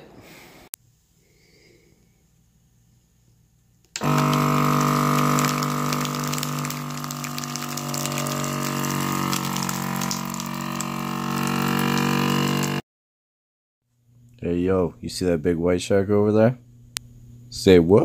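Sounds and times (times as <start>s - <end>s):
vacuum sealer pump humming: 3.8s - 12.8s.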